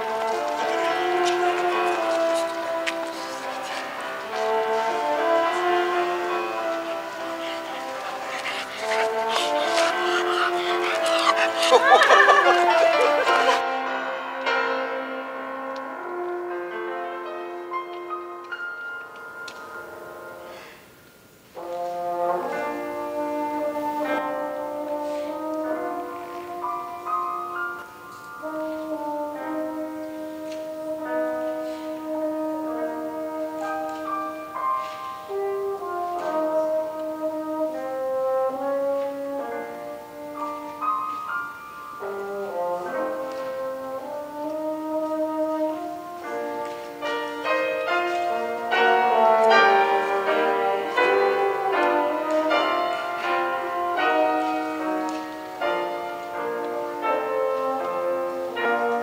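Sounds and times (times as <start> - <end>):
french horn melody: 0.0 - 59.0
piano accompaniment: 0.0 - 59.0.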